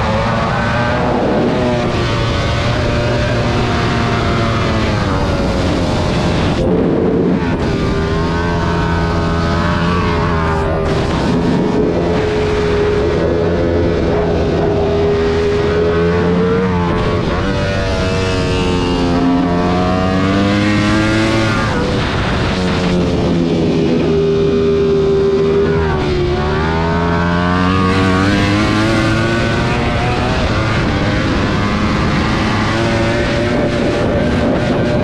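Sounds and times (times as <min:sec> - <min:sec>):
motorcycle engine at racing speed: 0:00.0 - 0:35.0
wind rush: 0:00.0 - 0:35.0.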